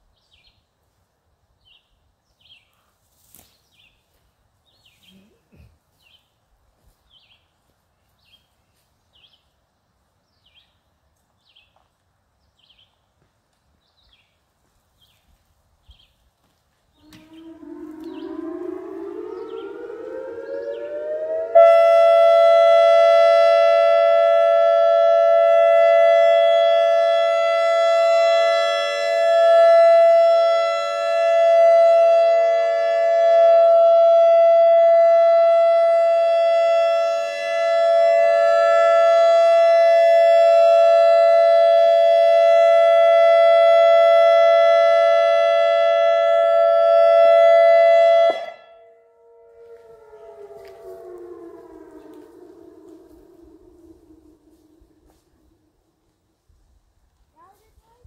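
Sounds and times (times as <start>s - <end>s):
siren glide: 16.9s - 56.2s
electronic siren steady tone: 16.9s - 56.7s.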